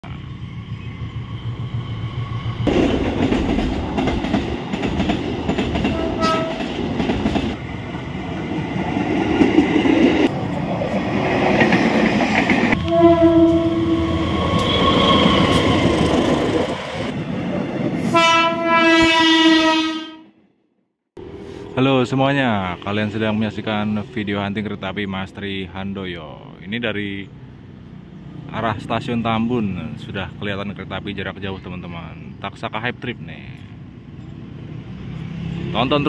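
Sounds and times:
train wheels clattering on rails: 0:02.6 - 0:07.6
train horn blast: 0:05.9 - 0:06.7, 0:12.7 - 0:15.2, 0:18.1 - 0:20.4.

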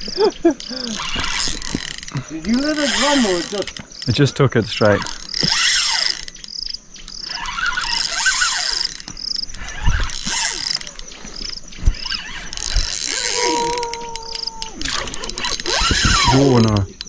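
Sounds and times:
insect chirping: 0:00.0 - 0:17.0
fishing reel ratcheting: 0:00.1 - 0:17.0.

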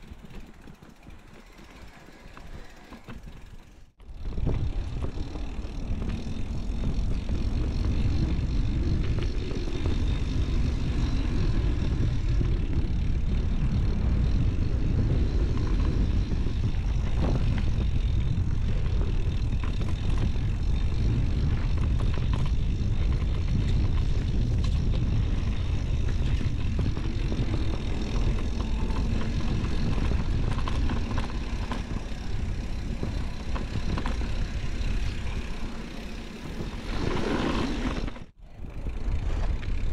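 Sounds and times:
bike tyres rolling over dirt: 0:00.0 - 0:39.9
wind rumble on microphone: 0:04.0 - 0:39.9.

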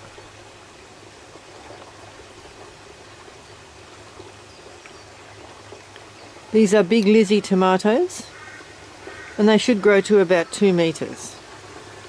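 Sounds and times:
trickling water: 0:00.0 - 0:12.0.

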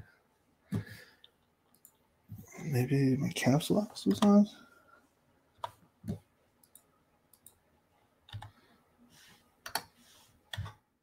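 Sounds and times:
computer keys clicking: 0:01.7 - 0:02.0, 0:04.1 - 0:04.4, 0:05.6 - 0:07.6, 0:08.3 - 0:08.6, 0:09.6 - 0:09.9.

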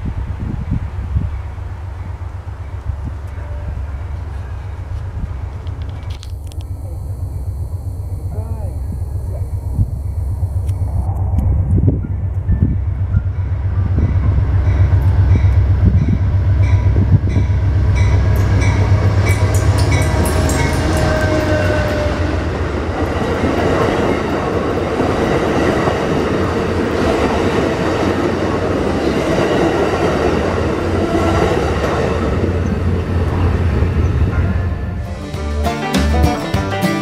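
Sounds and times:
rushing rumble of train cars: 0:00.0 - 0:06.3, 0:07.1 - 0:35.4
diesel locomotive engine drone: 0:00.0 - 0:37.0.

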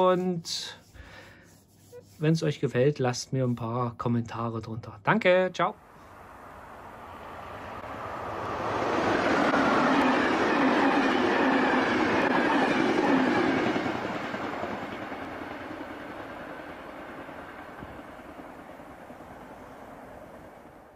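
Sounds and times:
train wheels rumbling on rail: 0:07.3 - 0:20.9.

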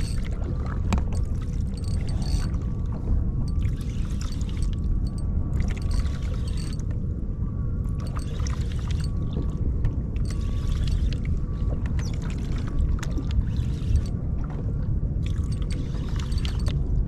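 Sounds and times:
water sloshing against hull: 0:00.0 - 0:07.1, 0:07.8 - 0:17.0
wind noise on microphone: 0:00.0 - 0:17.0
light clicks and ticks: 0:01.0 - 0:02.6.

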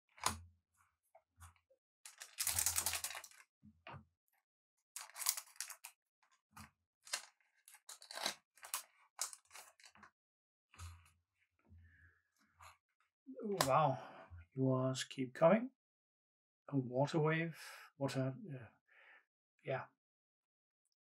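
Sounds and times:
card pack tearing open: 0:02.1 - 0:03.4, 0:05.0 - 0:05.9, 0:07.9 - 0:09.9.

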